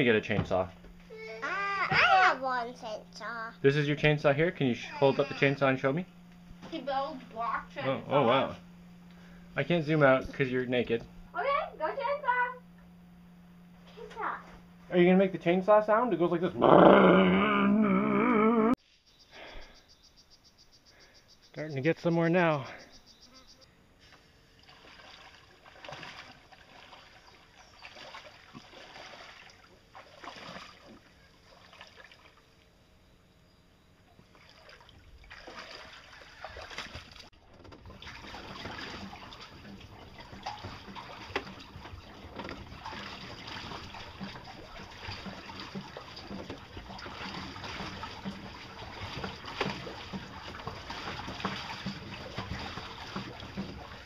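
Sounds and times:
water splashing against boat hull: 0:24.5 - 0:32.7, 0:34.2 - 0:54.0.

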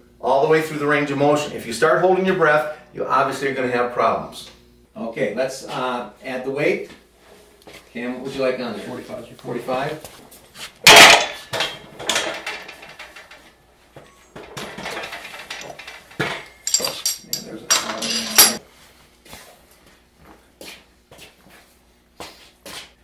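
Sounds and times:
weight plates clanking: 0:10.9 - 0:13.5, 0:14.4 - 0:18.6
ringing metal clinks: 0:16.4 - 0:18.6.

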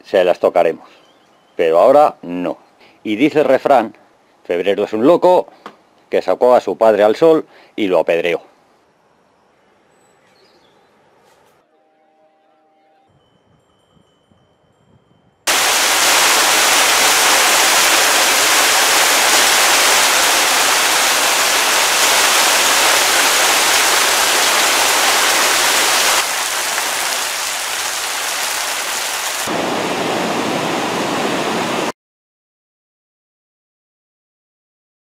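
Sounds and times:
heavy rain pouring: 0:15.5 - 0:31.9
river rushing in flood: 0:15.5 - 0:31.9.

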